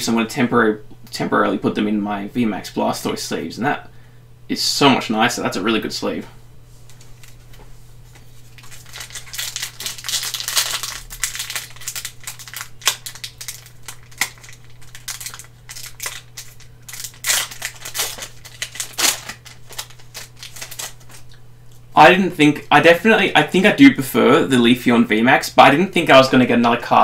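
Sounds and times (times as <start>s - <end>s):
foil wrapper crinkling: 6.9s - 21.4s.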